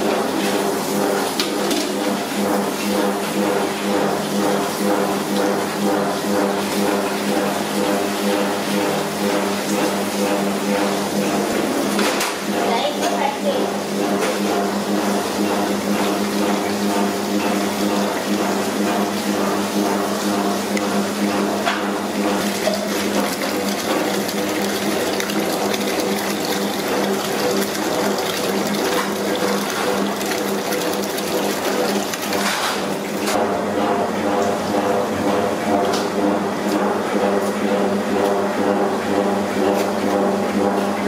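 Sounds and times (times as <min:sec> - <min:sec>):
water pouring into a pot: 0:22.4 - 0:33.1.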